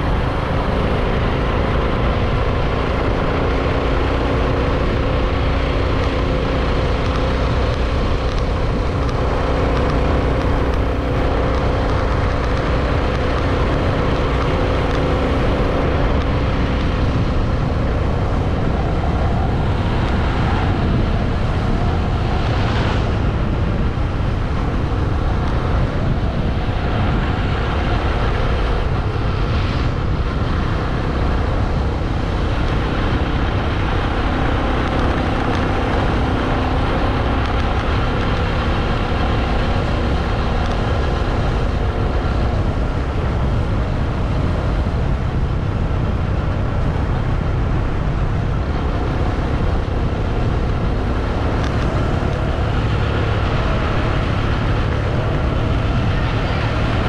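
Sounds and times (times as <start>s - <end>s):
motorbike engine cruising: 0.0s - 57.0s
wind and road noise: 0.0s - 57.0s.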